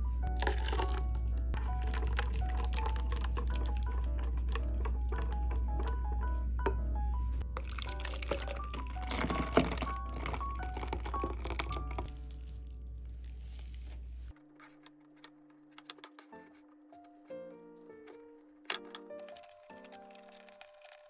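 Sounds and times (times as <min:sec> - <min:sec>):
background music with plucked notes: 0:00.0 - 0:12.8, 0:16.2 - 0:20.6
batter pouring and splattering: 0:00.3 - 0:05.4, 0:07.4 - 0:14.3.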